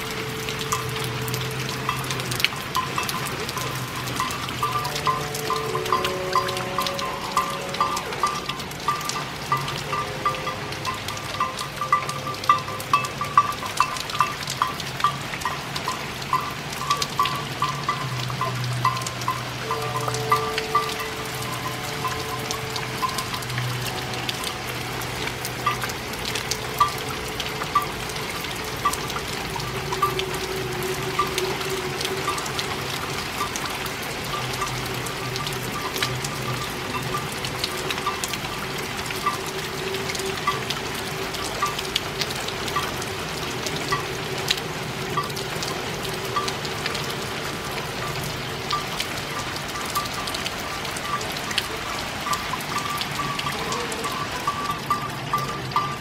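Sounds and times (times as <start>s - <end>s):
quiet music: 0.0s - 48.9s
rain drops ticking: 0.0s - 56.0s.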